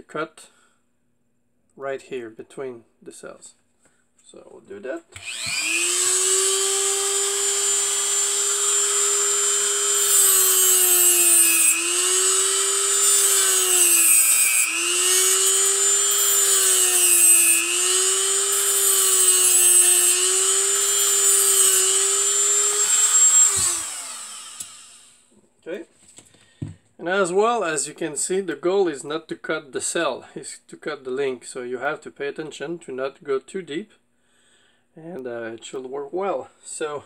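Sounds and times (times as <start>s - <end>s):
cut-off wheel grinding metal: 5.2s - 25.2s
rotary tool whining: 5.2s - 25.2s.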